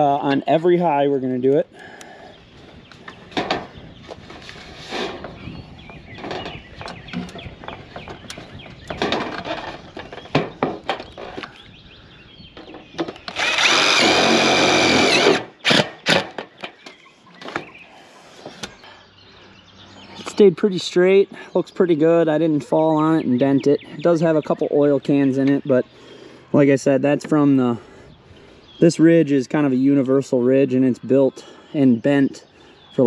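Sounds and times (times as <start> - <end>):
cordless drill driving screw: 13.2 - 16.4.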